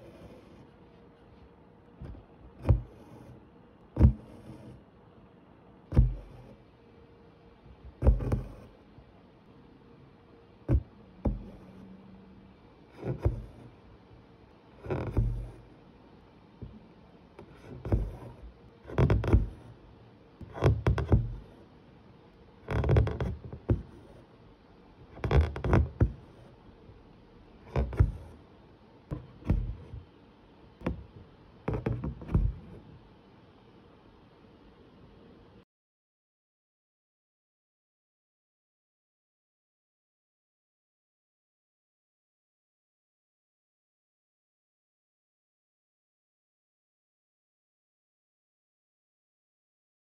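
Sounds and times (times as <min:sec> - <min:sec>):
fingers brushing taut canvas: 0:00.0 - 0:04.9, 0:05.8 - 0:06.8, 0:07.7 - 0:09.0, 0:10.6 - 0:12.1, 0:12.8 - 0:14.0, 0:14.7 - 0:16.0, 0:16.6 - 0:21.8, 0:22.5 - 0:24.4, 0:25.0 - 0:26.6, 0:27.5 - 0:28.5, 0:29.1 - 0:30.1, 0:30.8 - 0:33.1
needle punching through canvas: 0:04.0 - 0:04.8.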